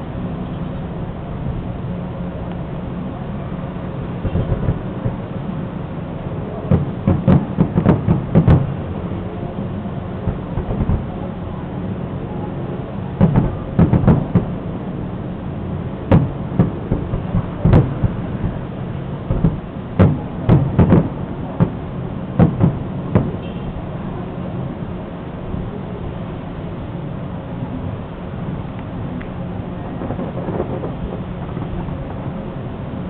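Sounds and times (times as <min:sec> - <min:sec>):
fireworks bangs: 0:04.0 - 0:05.4, 0:06.6 - 0:09.0, 0:10.2 - 0:11.2, 0:13.1 - 0:15.0, 0:16.0 - 0:23.9, 0:29.3 - 0:33.0.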